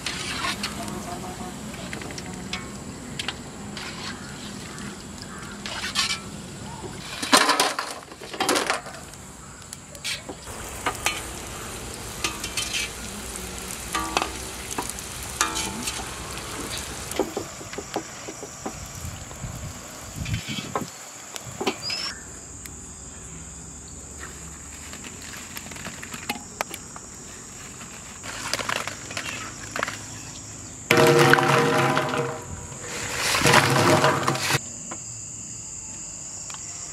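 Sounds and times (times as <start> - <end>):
deep-frying sizzle in hot oil: 10.4 - 22.5
metal utensil clinking on pan: 13.9 - 14.4, 15.4 - 16.1.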